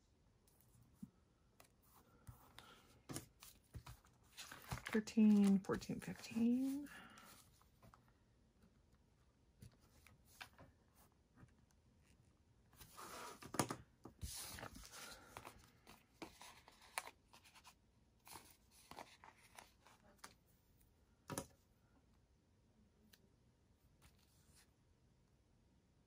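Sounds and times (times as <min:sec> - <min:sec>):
paper rustling: 0:02.2 - 0:08.0, 0:14.2 - 0:20.3.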